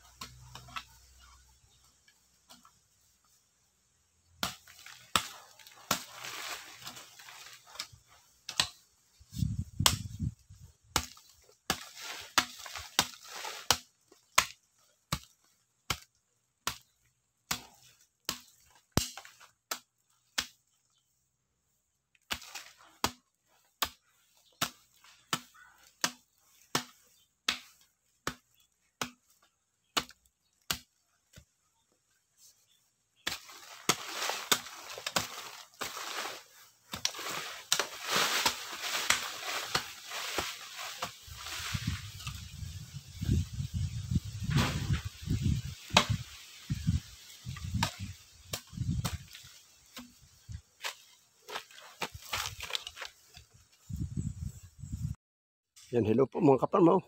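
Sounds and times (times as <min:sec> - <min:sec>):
hoe chopping into soil: 0:04.4 - 0:08.8, 0:33.2 - 0:42.6, 0:44.4 - 0:46.3, 0:46.9 - 0:53.1
scraping of loose earth: 0:04.4 - 0:15.9, 0:22.2 - 0:55.0.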